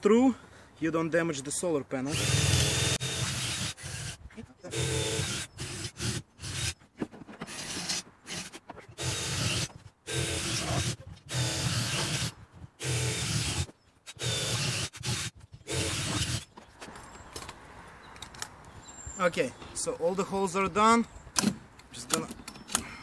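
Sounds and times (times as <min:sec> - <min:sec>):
cordless drill bursts: 0:02.1 - 0:06.8, 0:07.5 - 0:16.5.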